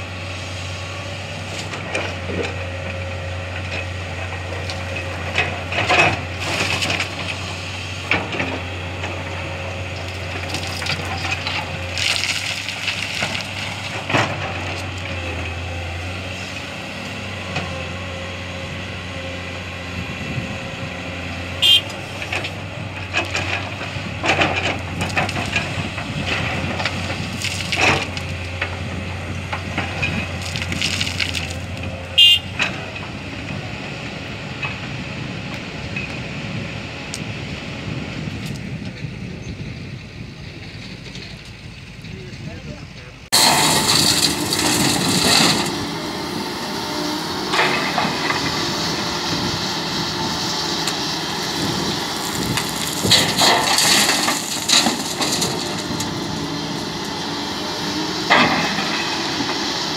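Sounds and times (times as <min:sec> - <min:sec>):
diesel engines humming: 0:00.0 - 0:59.9
sand and stones crunching into truck: 0:04.6 - 0:17.8, 0:21.6 - 0:33.6, 0:42.4 - 0:59.9.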